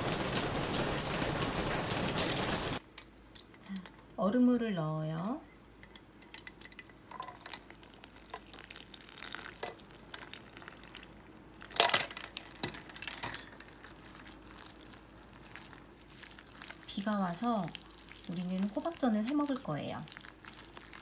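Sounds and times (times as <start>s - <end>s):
ice water pouring into bowl: 7.2s - 12.0s, 12.6s - 21.0s
batter being mixed in bowl: 7.4s - 11.7s, 13.6s - 21.0s.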